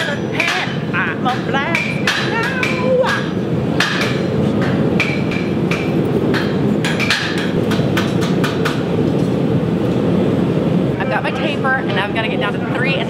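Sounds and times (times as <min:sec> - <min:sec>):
steady low rush: 0:00.0 - 0:13.0.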